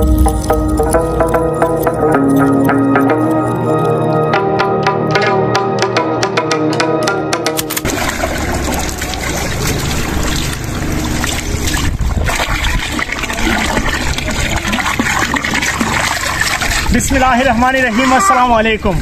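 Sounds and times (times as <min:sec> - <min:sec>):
water splashing into plastic drum: 0:07.6 - 0:17.8
water pouring from a hose: 0:07.8 - 0:19.0.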